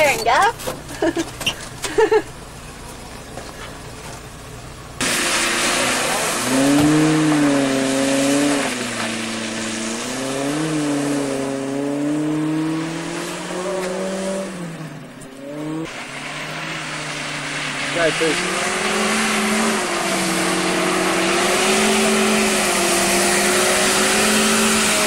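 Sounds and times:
engine revving: 0:05.0 - 0:25.0
wheels churning mud and water: 0:05.0 - 0:25.0.

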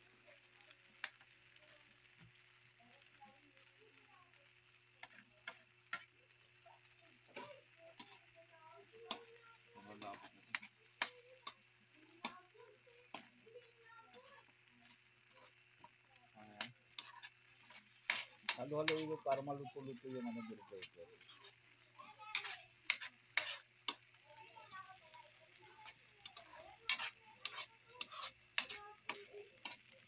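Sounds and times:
faint sizzle: 0:00.0 - 0:30.0
metal spatula scraping a wok: 0:07.3 - 0:08.4, 0:09.1 - 0:11.6, 0:14.1 - 0:24.1, 0:25.8 - 0:30.0.

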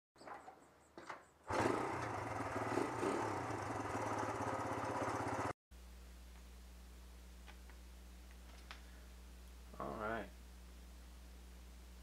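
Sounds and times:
small petrol engine running: 0:01.5 - 0:05.5.

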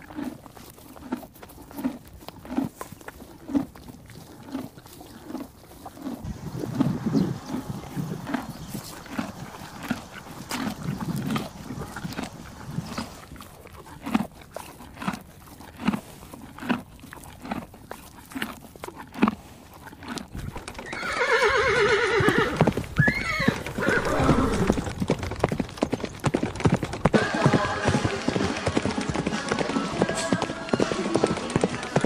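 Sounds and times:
hooves clopping on dirt: 0:00.0 - 0:32.0
horse whinnying: 0:06.2 - 0:13.4, 0:20.5 - 0:25.0.

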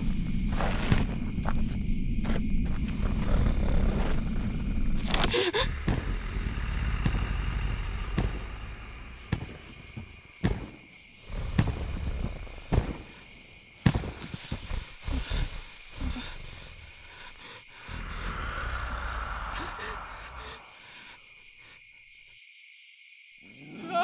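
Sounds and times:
heavy low rumble: 0:00.0 - 0:10.2
sharp cracks and thuds: 0:05.0 - 0:13.2, 0:13.8 - 0:14.7.

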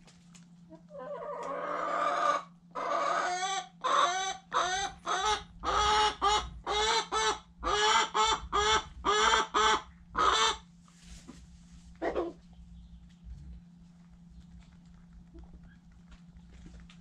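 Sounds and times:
chicken cackling: 0:00.7 - 0:10.7, 0:12.0 - 0:12.5.

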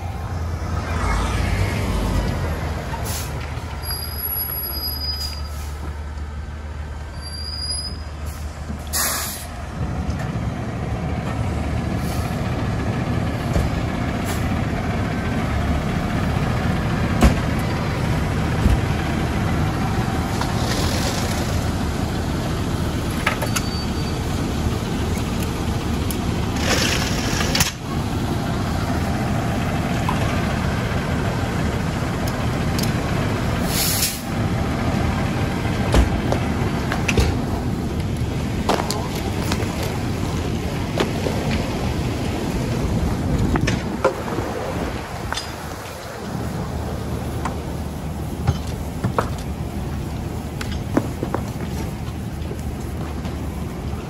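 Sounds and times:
diesel engine running: 0:00.0 - 0:54.0
air brake hisses: 0:03.0 - 0:03.4, 0:08.2 - 0:09.6, 0:33.6 - 0:34.3.

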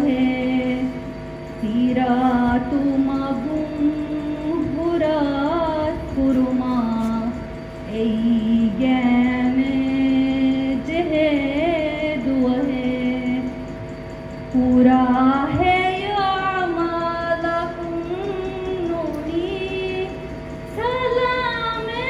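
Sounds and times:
woman singing into microphone: 0:00.0 - 0:01.0, 0:01.6 - 0:13.6, 0:14.5 - 0:22.0.

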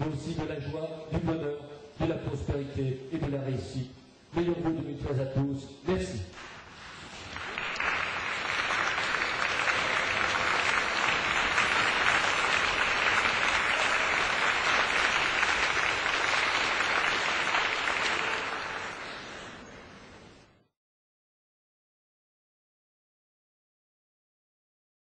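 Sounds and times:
audience applauding: 0:06.4 - 0:19.8.

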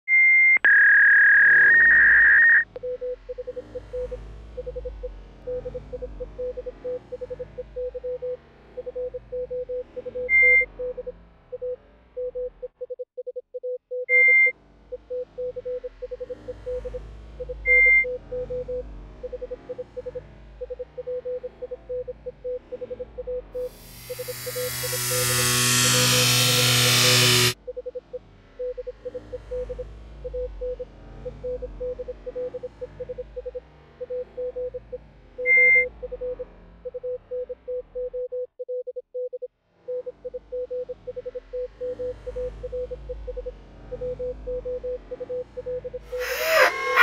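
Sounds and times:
high loud beeps: 0:00.1 - 0:03.6, 0:23.3 - 0:27.6
short electronic beeps: 0:00.1 - 0:26.0
steady electronic tone with hiss: 0:23.6 - 0:27.6.

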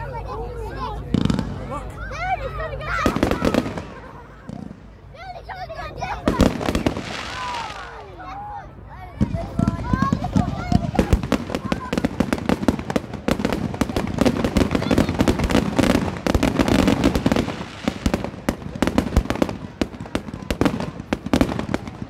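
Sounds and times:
fireworks bangs and crackles: 0:01.1 - 0:01.8, 0:02.9 - 0:05.1, 0:06.0 - 0:08.3, 0:09.2 - 0:22.0.

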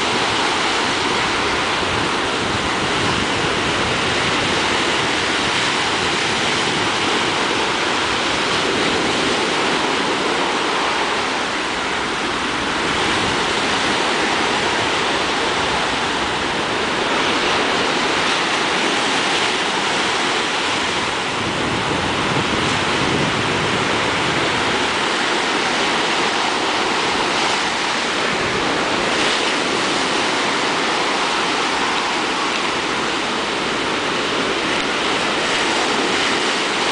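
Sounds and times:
sea surf breaking: 0:00.0 - 0:36.9
wind on microphone: 0:00.0 - 0:36.9.

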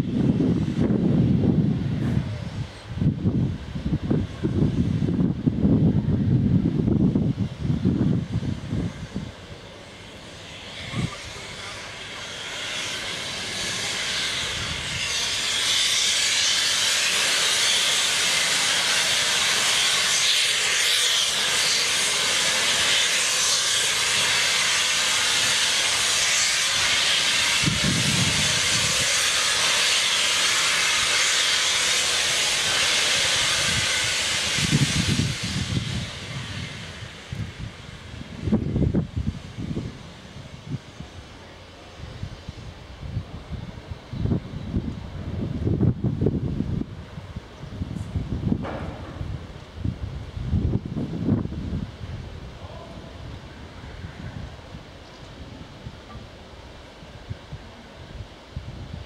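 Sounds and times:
steam hissing from locomotive: 0:00.0 - 0:59.0
low rumble: 0:47.8 - 0:53.4.

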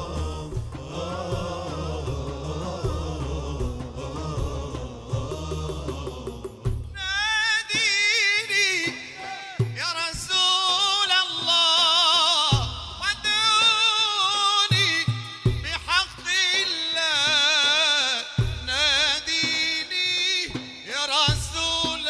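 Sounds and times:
man singing with vibrato: 0:00.0 - 0:22.0.

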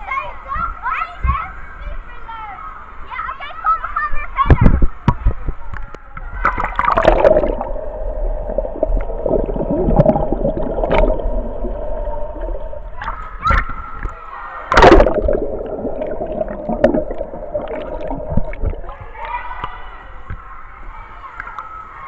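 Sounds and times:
water gurgling and sloshing: 0:05.2 - 0:20.6
water splashes: 0:06.2 - 0:20.5
muffled underwater hum: 0:07.0 - 0:13.1.

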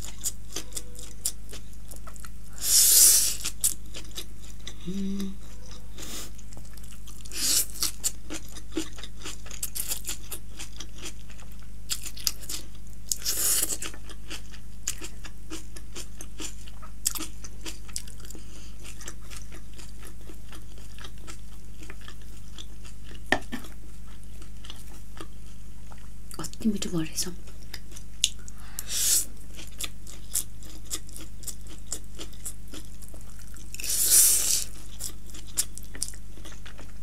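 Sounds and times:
steady low hum: 0:00.0 - 0:37.0
wet chewing: 0:03.3 - 0:26.1.

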